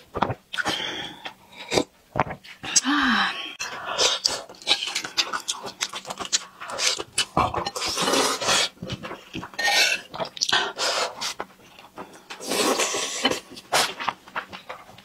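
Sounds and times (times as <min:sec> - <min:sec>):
slurping noodles: 0:03.9 - 0:11.4, 0:12.4 - 0:14.0
wet chewing: 0:04.0 - 0:15.0.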